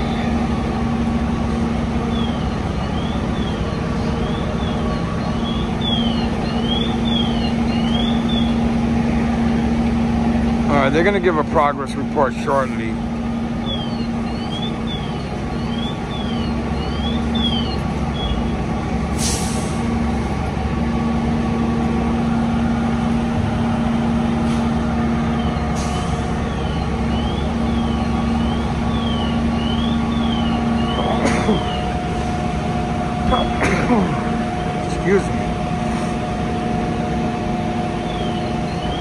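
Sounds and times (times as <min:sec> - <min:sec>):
truck engines running: 0:00.0 - 0:39.0
air brake hiss: 0:19.1 - 0:19.8, 0:25.8 - 0:26.3.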